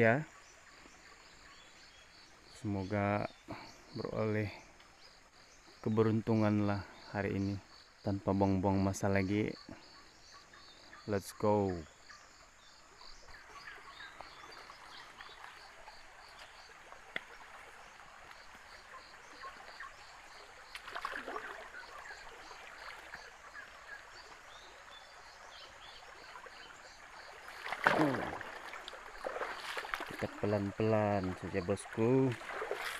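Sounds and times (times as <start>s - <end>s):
river water rushing: 14.0s - 32.9s
footsteps in rustling undergrowth: 28.6s - 30.2s.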